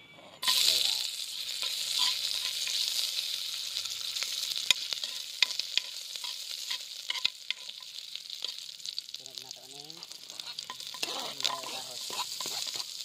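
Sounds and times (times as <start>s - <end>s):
ginger sizzling in hot oil: 0.4s - 13.0s
spatula scraping a pot: 1.4s - 3.0s, 4.7s - 8.6s, 10.0s - 13.0s.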